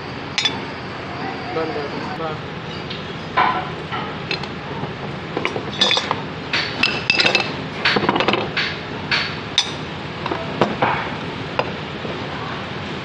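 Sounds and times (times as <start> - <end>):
metal parts clinking: 0.4 - 0.6, 5.4 - 6.2, 6.8 - 8.4, 9.6 - 10.4.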